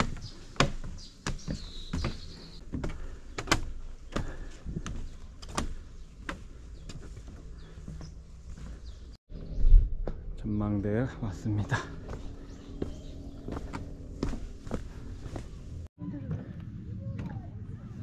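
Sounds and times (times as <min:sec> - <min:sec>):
footsteps on wooden stairs: 0:00.0 - 0:09.2, 0:11.6 - 0:15.9.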